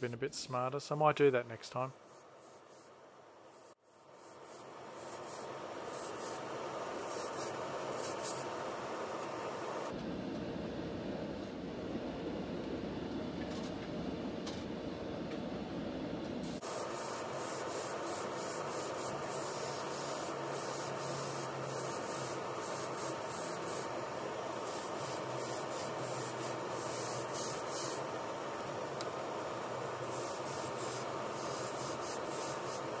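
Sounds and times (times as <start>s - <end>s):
steady low hum: 0.0s - 33.0s
airbrush spraying in hissing bursts: 1.8s - 8.7s, 16.4s - 23.9s, 24.5s - 28.1s, 30.0s - 33.0s.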